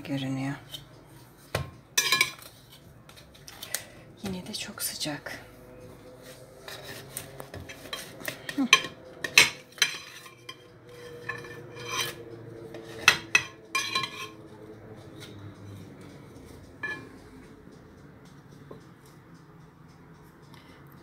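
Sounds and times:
knife scraping and clinking on glass dish: 0:02.0 - 0:02.5, 0:07.7 - 0:14.5, 0:16.8 - 0:17.2.

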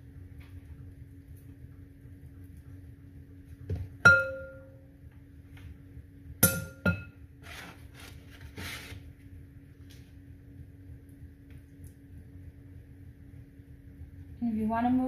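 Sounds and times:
faint steady hum: 0:00.0 - 0:15.0
utensil striking glass dish: 0:04.0 - 0:04.7, 0:06.4 - 0:07.1
soft scraping: 0:07.4 - 0:09.1.

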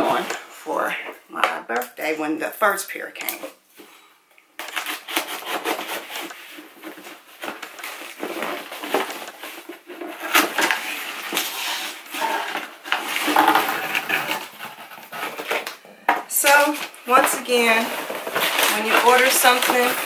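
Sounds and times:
packaging rustling and crackling: 0:04.6 - 0:15.8, 0:16.4 - 0:20.0.

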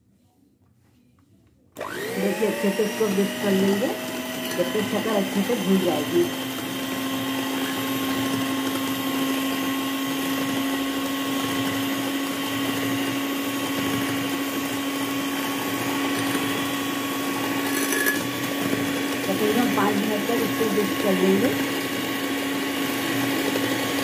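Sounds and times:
electric hand mixer humming: 0:01.8 - 0:24.0.

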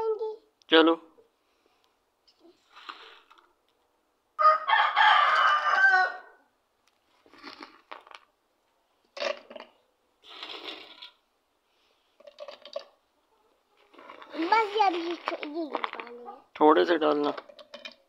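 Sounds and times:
rooster crowing: 0:04.4 - 0:06.4.

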